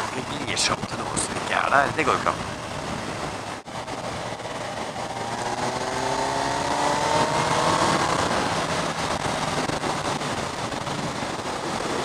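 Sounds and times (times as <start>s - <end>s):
wind and road noise: 0.0s - 12.0s
motorcycle engine revving: 3.6s - 12.0s.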